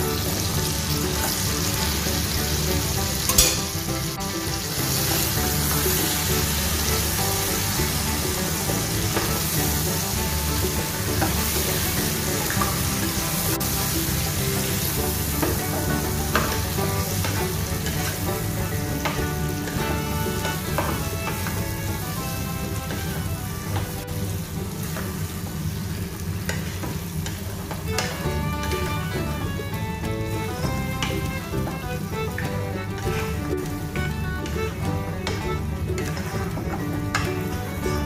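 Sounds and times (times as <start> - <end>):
meat and onions sizzling in oil: 0.0 - 28.4
spatula scraping and knocking pan: 0.0 - 38.0.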